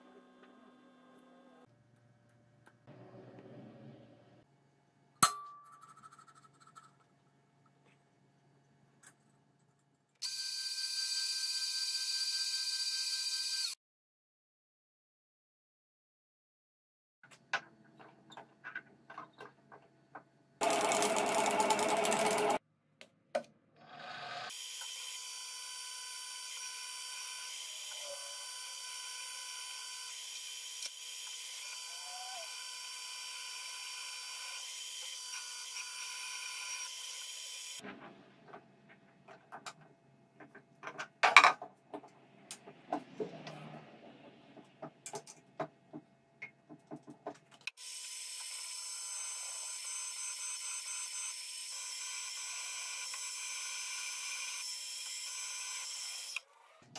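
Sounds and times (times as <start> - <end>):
drill boring into metal: 24.5 - 37.8.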